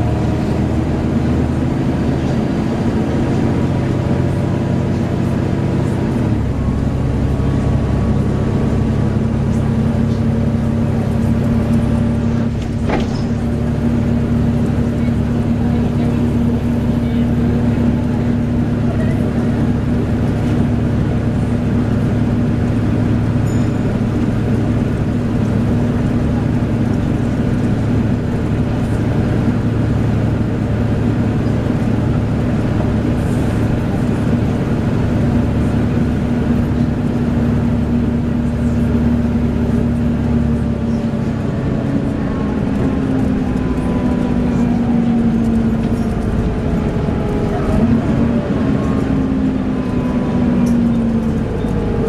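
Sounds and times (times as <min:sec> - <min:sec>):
bus diesel engine drone: 0:00.0 - 0:52.0
cooling fan whirring: 0:39.1 - 0:52.0.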